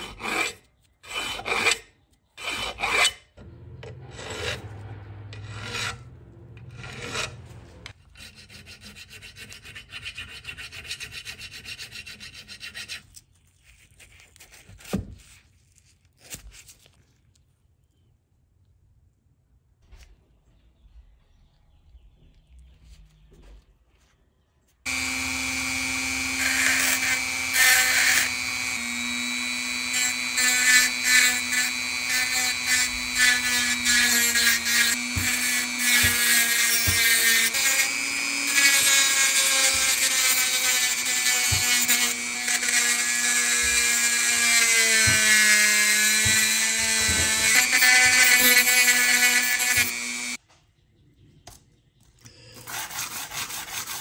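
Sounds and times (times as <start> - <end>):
scraping on rusted metal: 2.4 - 13.0
electric power tool motor: 24.9 - 50.4.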